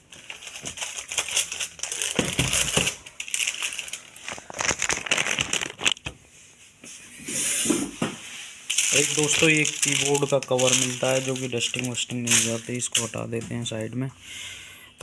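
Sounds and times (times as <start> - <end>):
plastic packaging crinkling: 0.0 - 6.1, 8.7 - 13.9.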